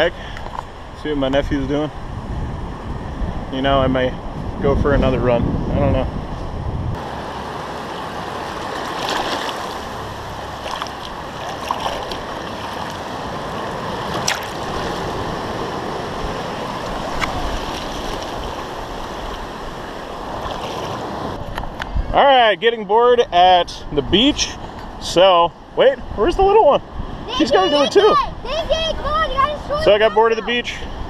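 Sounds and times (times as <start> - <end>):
wind buffeting microphone: 0.0 - 22.2, 25.6 - 31.0
ocean waves breaking: 5.4 - 31.0
water splashes: 7.0 - 21.4.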